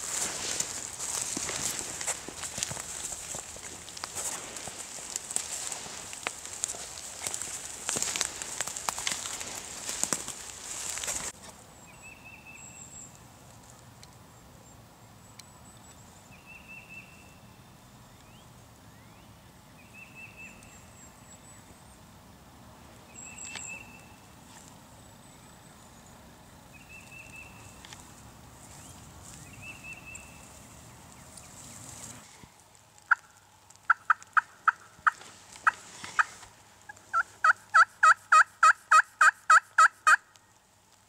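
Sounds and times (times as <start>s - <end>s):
footsteps crunching dry leaves: 0.0s - 11.5s, 27.1s - 33.0s, 34.8s - 37.4s.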